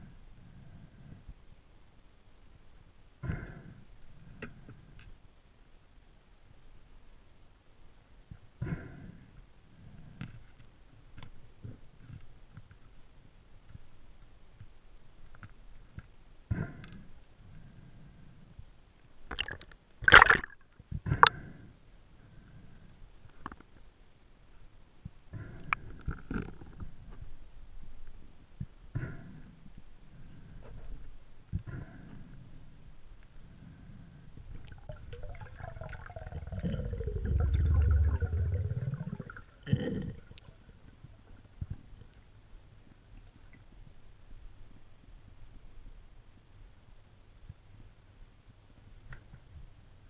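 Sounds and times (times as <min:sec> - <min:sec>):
rush of water and bubbles: 0:19.3 - 0:21.4, 0:34.6 - 0:41.4
underwater rumble: 0:34.4 - 0:42.4.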